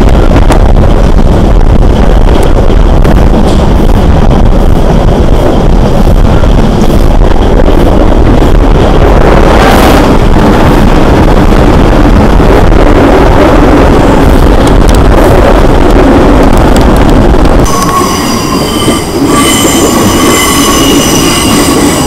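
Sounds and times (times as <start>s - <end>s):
electric train rumbling: 0.0s - 22.0s
wind noise on microphone: 0.0s - 22.0s.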